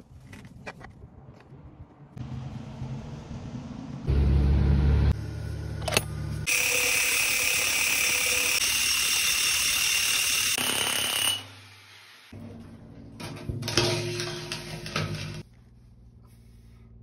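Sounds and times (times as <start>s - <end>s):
hammer drill drilling concrete: 6.5s - 11.7s
pipe scraping and knocking: 12.4s - 15.5s.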